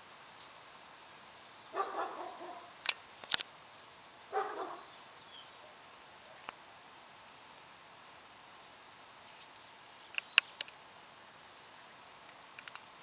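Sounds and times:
dog barking: 1.7 - 2.7, 4.3 - 4.9
sharp clicks: 10.1 - 10.8.

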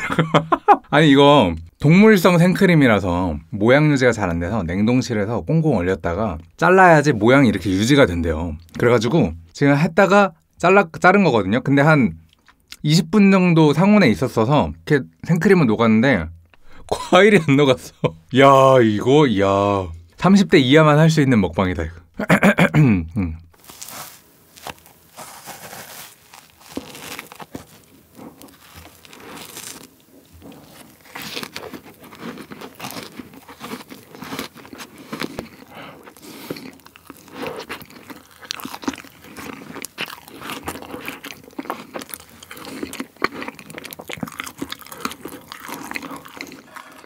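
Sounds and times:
chewing and crunching frozen fruit: 23.6 - 47.0.

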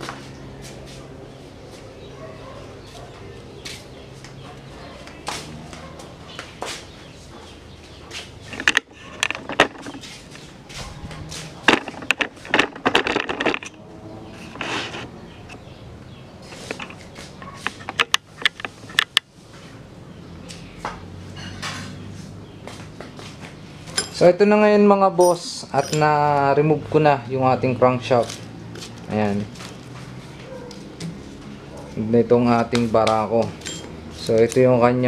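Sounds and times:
metal clanks and knocks: 8.5 - 10.0, 11.6 - 13.8.

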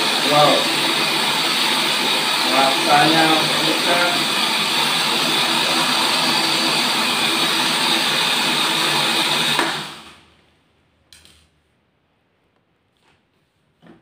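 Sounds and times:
blender grinding rice and ice: 0.0 - 10.3.

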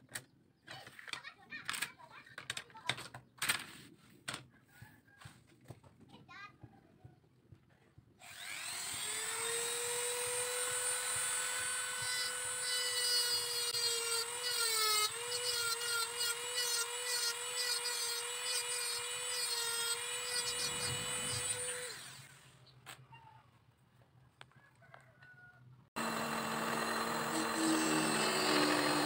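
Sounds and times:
rotary tool high whine: 8.2 - 22.4, 26.0 - 29.0.

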